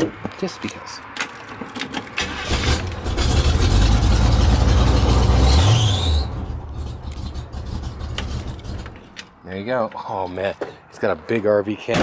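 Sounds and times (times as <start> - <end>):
engine starting and revving: 2.2 - 8.8.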